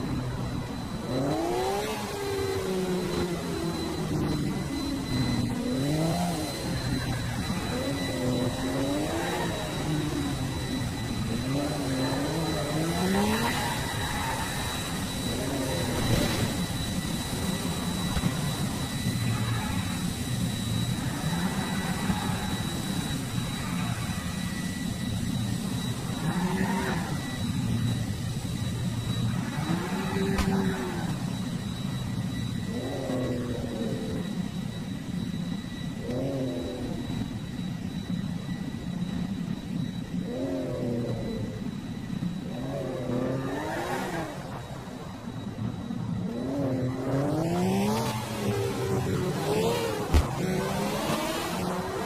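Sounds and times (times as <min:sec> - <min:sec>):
engine-like revving noises: 0:00.0 - 0:31.6, 0:46.2 - 0:52.0
steady high whine: 0:00.0 - 0:52.0.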